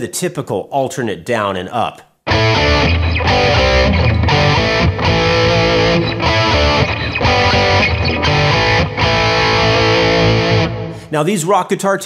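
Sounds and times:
distorted electric guitar riff: 0:02.3 - 0:11.1.

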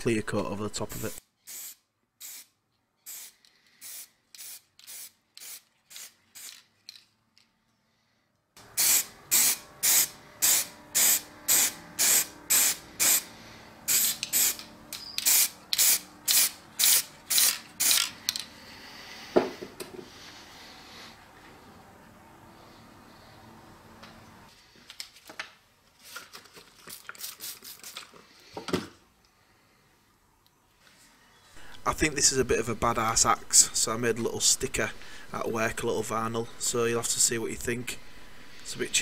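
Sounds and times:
spray can hissing: 0:01.5 - 0:02.5, 0:03.1 - 0:06.6, 0:08.8 - 0:13.2, 0:13.9 - 0:14.6, 0:15.2 - 0:18.0, 0:27.2 - 0:28.0.

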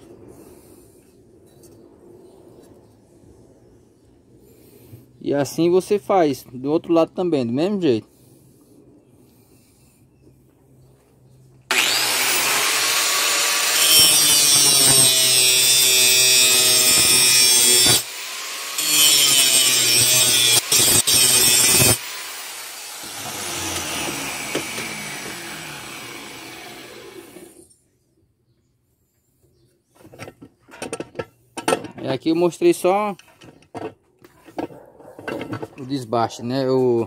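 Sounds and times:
angle grinder grinding steel: 0:11.7 - 0:27.7.

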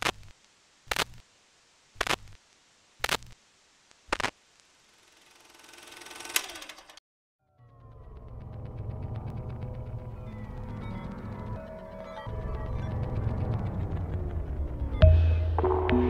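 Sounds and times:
sharp mechanical clicks: 0:03.0 - 0:03.4, 0:05.2 - 0:07.0.

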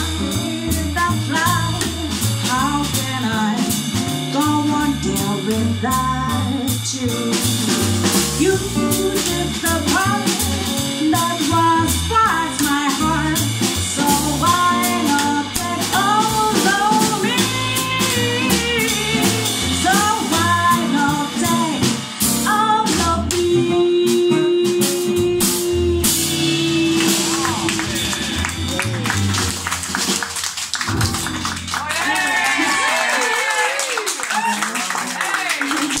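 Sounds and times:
woman singing into a microphone: 0:00.0 - 0:27.3
rock band playing: 0:00.0 - 0:33.2.

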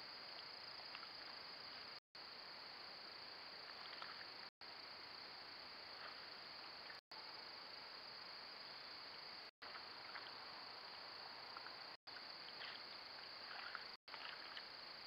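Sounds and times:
steady high-pitched hiss: 0:00.0 - 0:15.0
beaver rustling and splashing: 0:12.4 - 0:14.8.

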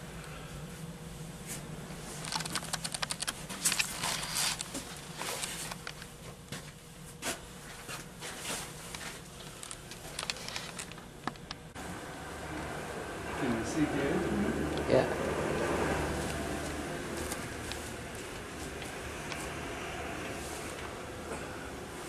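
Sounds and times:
low steady hum: 0:00.0 - 0:22.0
clicking and crackling: 0:02.2 - 0:04.8, 0:08.9 - 0:11.6.

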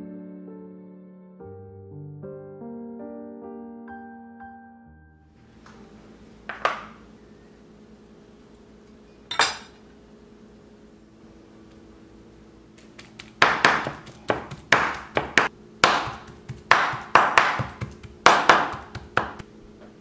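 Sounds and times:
cleaver pounding on cutting board: 0:13.2 - 0:19.4.

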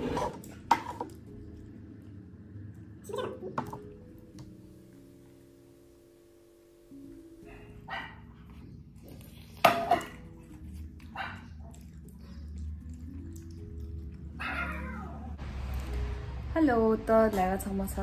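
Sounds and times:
soft background music: 0:00.0 - 0:18.0
dog barking: 0:07.4 - 0:08.4, 0:11.1 - 0:11.9.

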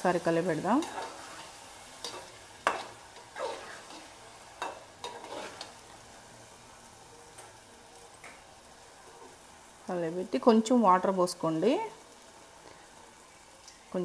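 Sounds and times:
curry sizzling: 0:00.0 - 0:14.0
ladle scraping metal pot: 0:00.8 - 0:05.7.

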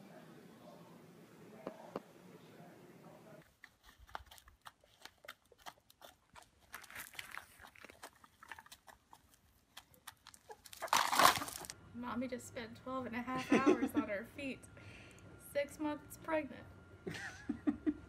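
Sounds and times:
hens pecking grain on concrete: 0:03.4 - 0:11.8.

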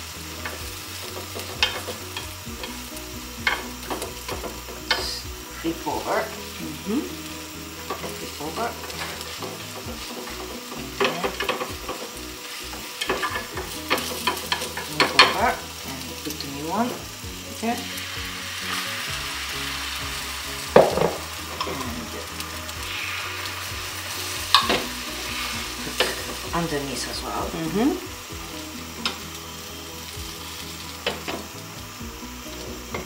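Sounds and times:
egg sizzling in a pan: 0:00.0 - 0:33.0
chopsticks knocking and scraping pan: 0:00.4 - 0:05.1, 0:07.8 - 0:15.6, 0:20.7 - 0:22.4, 0:24.0 - 0:27.1.

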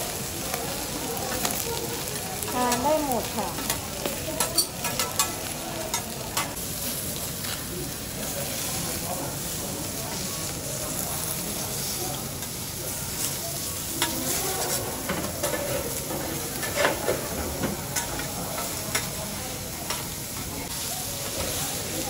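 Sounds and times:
food sizzling on griddle: 0:00.0 - 0:22.0
metal spatula striking hot plate: 0:03.5 - 0:06.6, 0:18.0 - 0:19.2.

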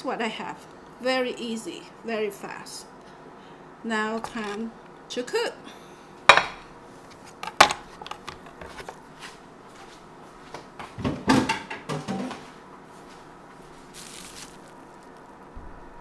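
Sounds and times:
soft hiss: 0:13.6 - 0:15.8.

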